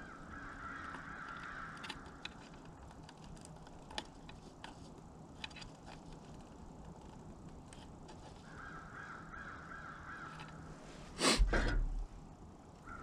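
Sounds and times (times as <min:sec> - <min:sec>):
hands handling wires clicking: 0:00.7 - 0:08.6, 0:10.2 - 0:10.6
faint hiss: 0:10.6 - 0:12.3.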